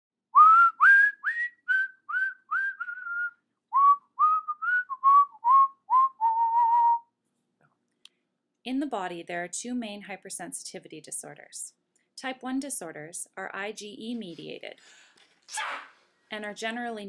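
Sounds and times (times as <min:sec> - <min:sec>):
person whistling a tune: 0:00.4 - 0:07.1.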